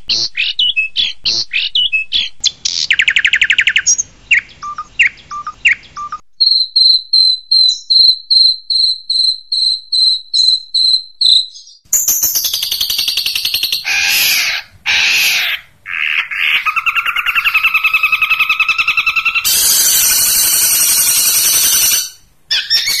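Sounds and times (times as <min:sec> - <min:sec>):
bird harsh chattering calls: 0:00.0 - 0:06.2, 0:11.2 - 0:23.0
bird rapid trill: 0:00.1 - 0:23.0
bird rasping squawks: 0:13.8 - 0:23.0.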